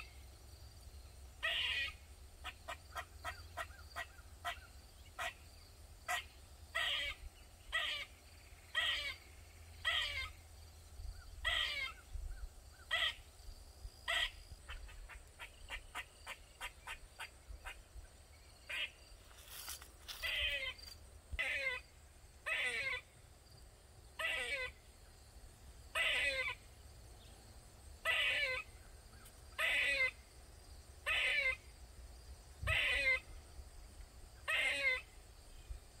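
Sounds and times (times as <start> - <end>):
squirrel harsh calls: 1.4 - 5.4, 6.1 - 10.4, 11.3 - 12.1, 12.9 - 13.2, 14.1 - 17.8, 18.7 - 20.8, 21.4 - 23.1, 24.2 - 24.8, 25.9 - 26.6, 28.0 - 28.8, 29.6 - 30.2, 31.0 - 31.6, 32.6 - 33.3, 34.4 - 35.2.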